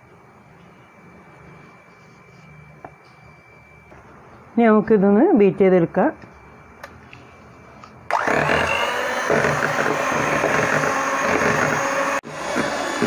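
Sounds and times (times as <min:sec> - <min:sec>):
electric hand mixer whining: 0:08.1 - 0:13.0.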